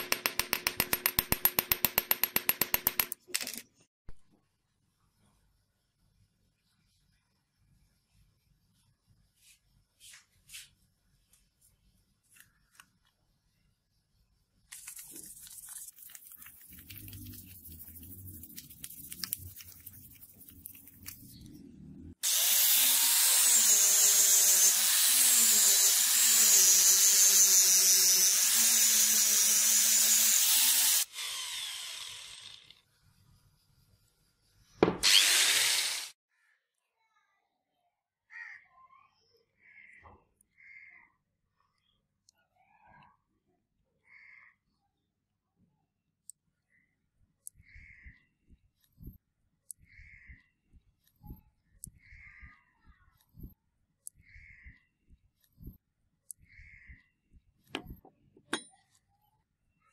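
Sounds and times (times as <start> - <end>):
angle grinder grinding metal: 22.2 - 32.8, 35.0 - 36.2.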